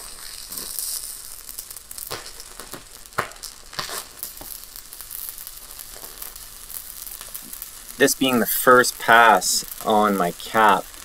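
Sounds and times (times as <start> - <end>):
welding arc crackling sizzle: 0.0 - 11.0
welding arc pops: 0.0 - 11.0.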